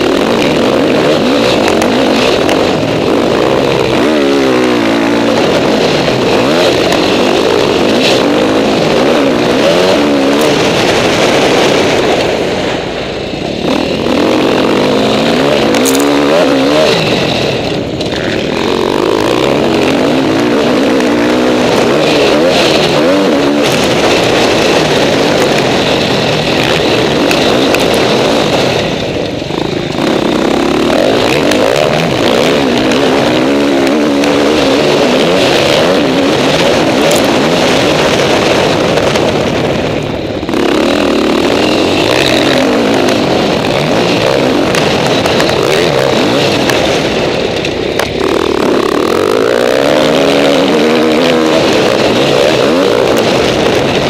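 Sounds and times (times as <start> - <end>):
motocross engine revving: 0.0 - 54.0.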